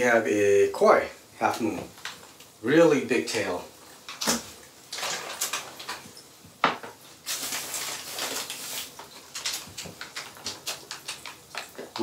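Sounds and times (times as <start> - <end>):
foil and plastic bags crinkling: 4.9 - 6.2, 7.2 - 12.0.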